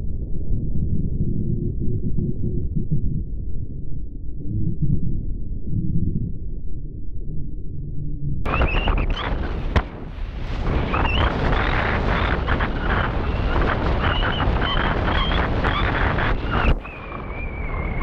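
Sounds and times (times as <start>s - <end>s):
wind rushing over microphone: 8.5s - 18.0s.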